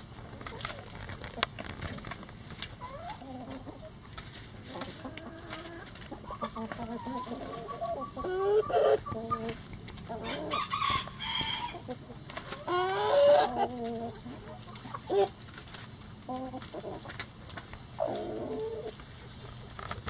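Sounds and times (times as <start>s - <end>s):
hens clucking: 0.0s - 20.0s.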